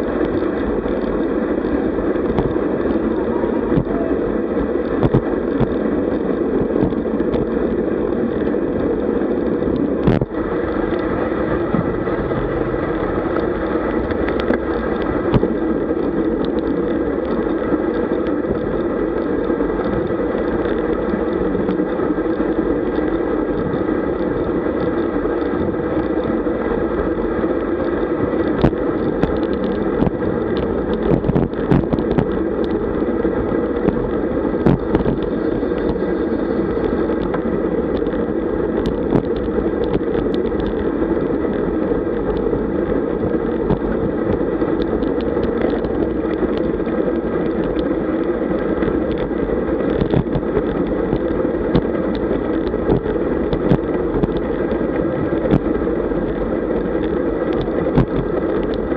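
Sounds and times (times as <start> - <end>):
bicycle tyre road noise: 0.0 - 58.9
wind rush: 0.0 - 58.9
small knocks and clicks: 4.9 - 5.8, 38.8 - 40.9, 49.9 - 54.5.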